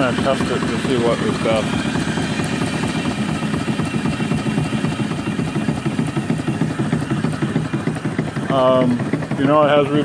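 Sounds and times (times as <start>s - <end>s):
steam engine running: 0.0s - 10.0s.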